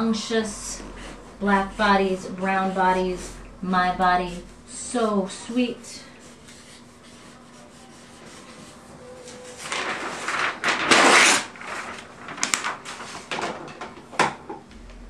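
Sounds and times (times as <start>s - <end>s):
paper sheet rustling and sliding: 6.2s - 13.7s.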